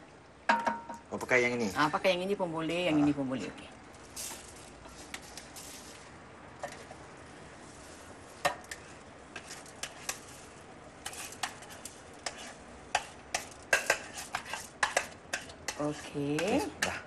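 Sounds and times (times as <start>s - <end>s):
rice poured into pot: 3.9s - 15.0s.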